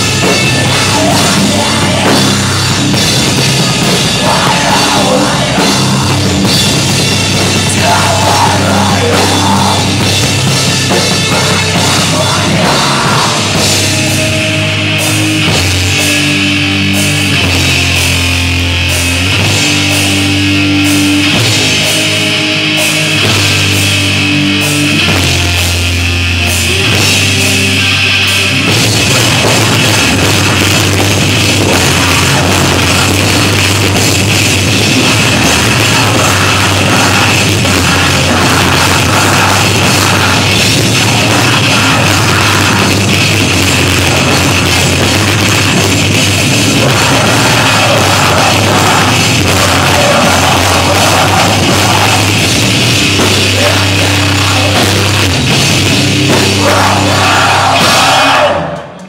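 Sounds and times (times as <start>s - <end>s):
drum kit: 0.0s - 59.0s
electric guitars: 0.0s - 59.0s.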